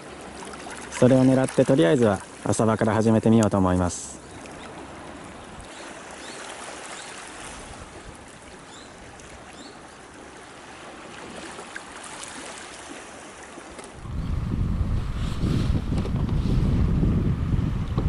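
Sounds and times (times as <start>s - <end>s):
small waves washing over rocks: 4.5s - 14.0s.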